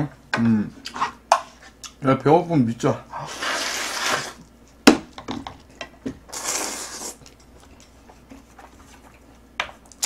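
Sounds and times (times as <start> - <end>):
noodles slurped: 6.3 - 7.3.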